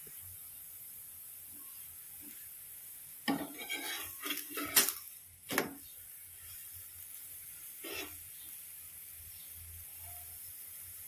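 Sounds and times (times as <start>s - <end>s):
spatula scraping iron griddle: 3.3s - 5.0s, 7.8s - 8.2s.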